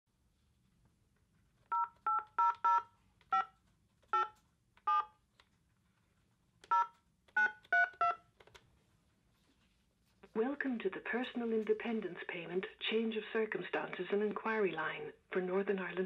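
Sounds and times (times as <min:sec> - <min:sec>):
phone keypad two-tone beeps: 0:06.7 - 0:08.2.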